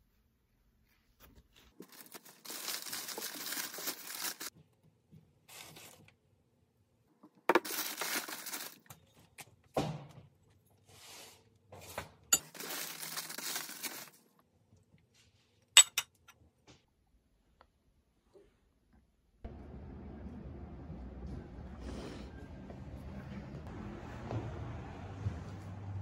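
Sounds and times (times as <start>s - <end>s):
plastic bags rustling: 1.7s - 4.5s, 7.5s - 8.9s, 12.4s - 14.2s.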